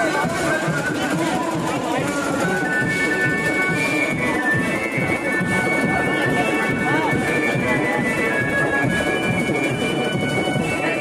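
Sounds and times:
loud music with wind instruments: 0.0s - 11.0s.

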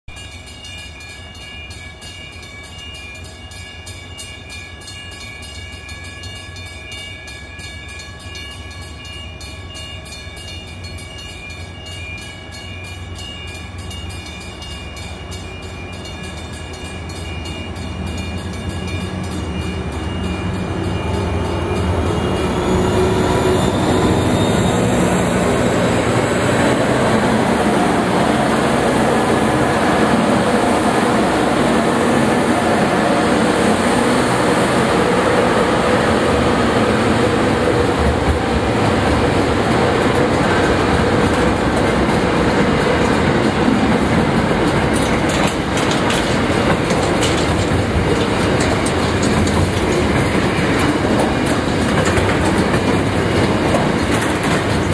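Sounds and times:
train wheel noise: 13.9s - 54.9s
diesel locomotive engine rumble: 14.6s - 54.9s.

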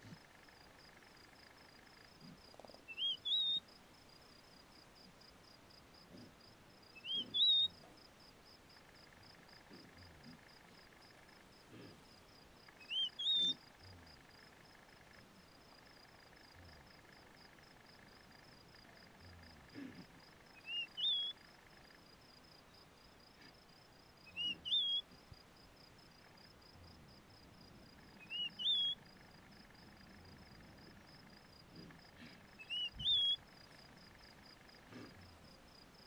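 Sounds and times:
songbird whistling: 2.9s - 3.6s, 12.9s - 13.5s, 20.6s - 21.4s, 24.4s - 25.0s, 28.2s - 29.0s, 32.6s - 33.4s.

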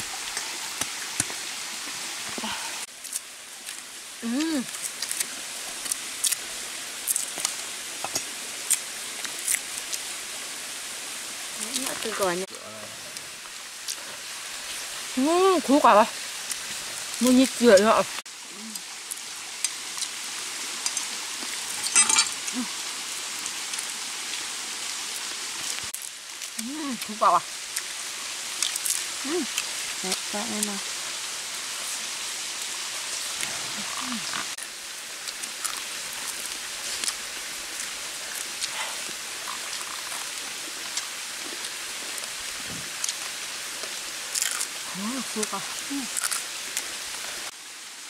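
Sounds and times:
crackling rustle: 0.0s - 47.6s
food peeling clicks and rustles: 2.9s - 10.1s, 28.5s - 30.3s, 42.9s - 44.8s, 46.0s - 47.4s
person humming: 4.2s - 4.7s, 18.5s - 18.9s, 29.2s - 29.5s, 33.7s - 34.5s.

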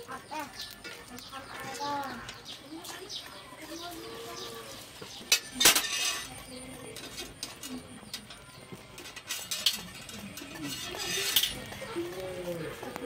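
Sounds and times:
metallic clatter: 5.3s - 6.4s, 9.0s - 11.9s.

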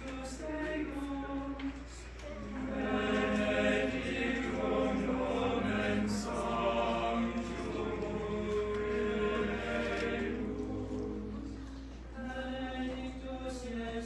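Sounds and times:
men's choir singing a cappella: 0.0s - 14.0s.

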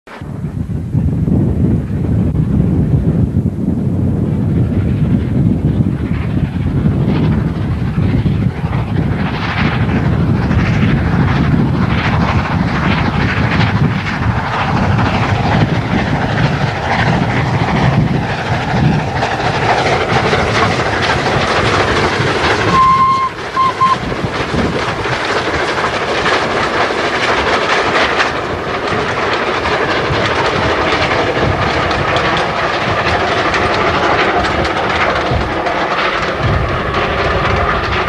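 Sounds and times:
steam locomotive exhaust beats: 0.1s - 38.0s
train rumble and clatter: 0.1s - 38.0s
steady tone: 22.6s - 24.1s
brief pips: 22.8s - 24.0s.

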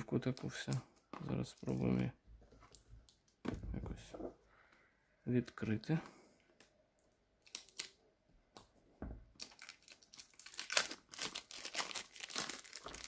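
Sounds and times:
plastic film crinkling and tearing: 7.4s - 8.0s, 9.4s - 13.0s.

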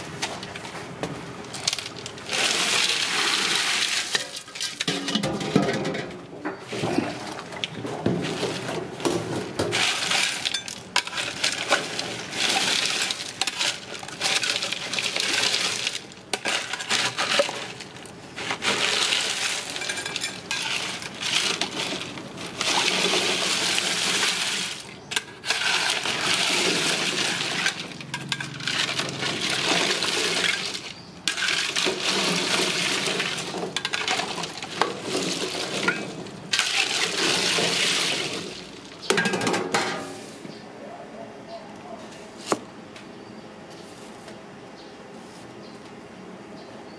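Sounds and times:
ice and eggs clinking in metal pot: 1.6s - 5.8s, 9.7s - 39.6s.

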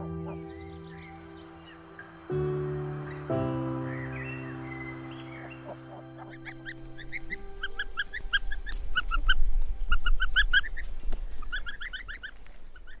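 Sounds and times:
ducklings peeping: 4.0s - 13.0s.

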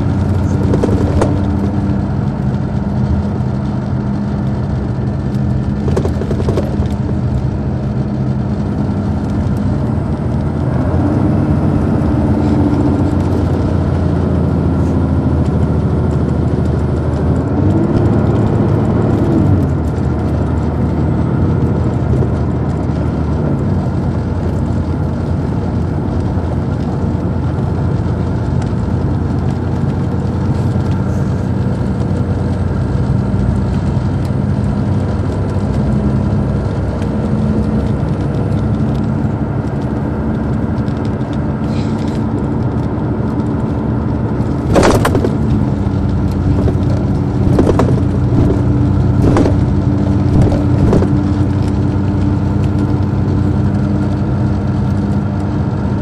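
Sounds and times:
bus engine running: 0.0s - 56.0s.

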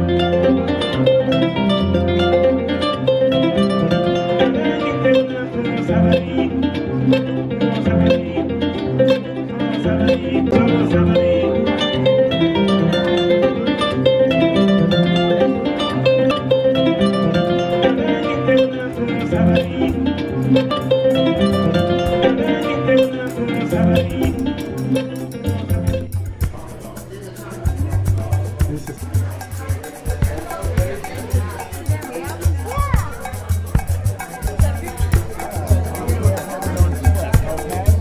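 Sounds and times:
kora plucked notes: 0.0s - 38.0s
low bass notes: 0.0s - 38.0s.

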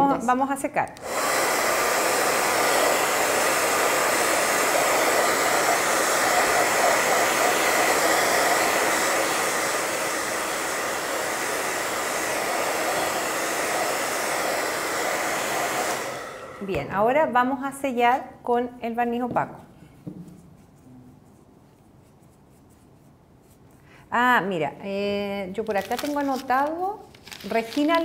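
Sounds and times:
hair dryer blowing: 1.0s - 17.2s.

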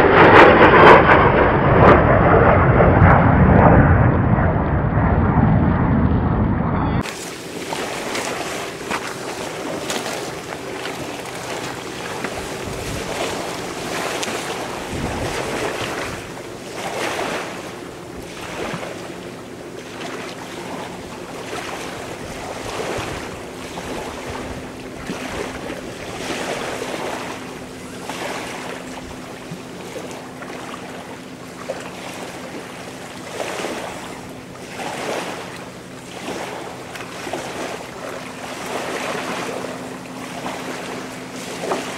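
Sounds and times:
wind on microphone: 0.0s - 19.0s, 21.5s - 29.4s
waves washing onto stony shore: 7.0s - 20.8s.

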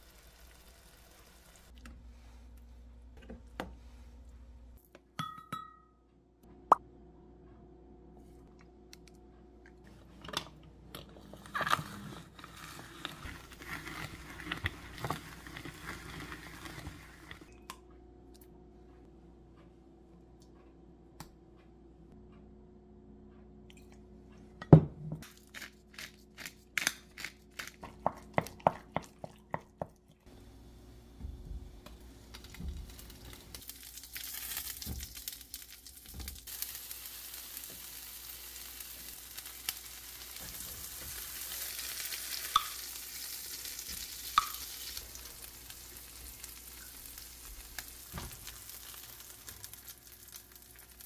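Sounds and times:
ingredients spooned and poured: 11.0s - 17.8s
wooden spoon stirring thick paste: 12.3s - 17.4s.

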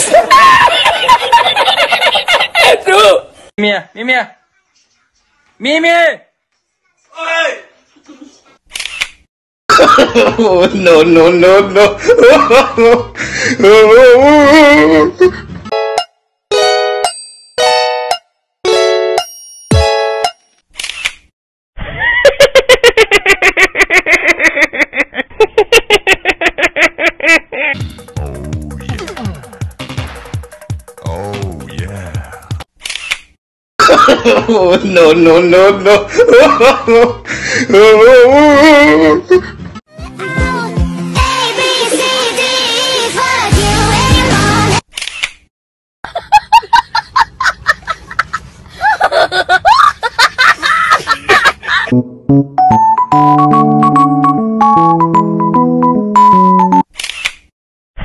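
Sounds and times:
person laughing: 0.1s - 2.9s, 21.8s - 29.2s, 33.8s - 39.8s, 46.0s - 52.0s.

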